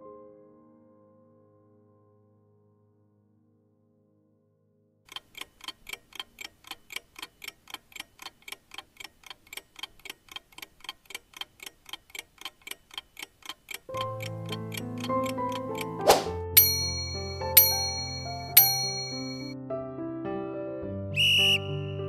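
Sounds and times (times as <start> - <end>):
clock ticking: 5.1 - 19.5.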